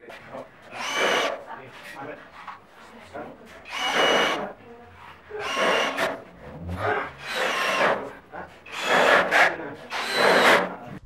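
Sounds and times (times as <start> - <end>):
screw grinding into sheet metal: 0.2 - 11.0
cordless drill driving screws: 0.6 - 2.0, 3.5 - 10.9.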